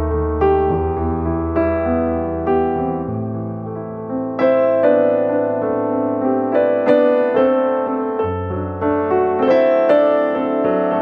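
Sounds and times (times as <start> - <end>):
piano piece: 0.0 - 11.0.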